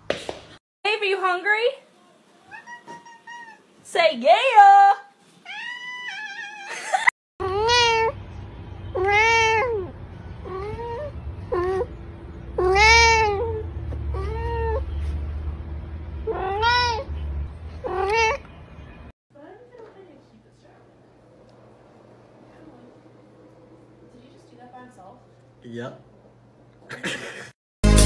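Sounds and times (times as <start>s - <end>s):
cat meowing: 2.4s - 3.7s, 5.4s - 6.8s, 7.4s - 8.2s, 8.9s - 11.9s, 12.6s - 14.9s, 16.2s - 17.1s, 17.8s - 18.4s
kitten crying: 2.5s - 3.7s, 5.4s - 8.2s, 8.9s - 11.9s, 12.6s - 14.9s, 16.2s - 17.1s, 17.8s - 18.4s
steady low hum: 19.4s - 27.4s.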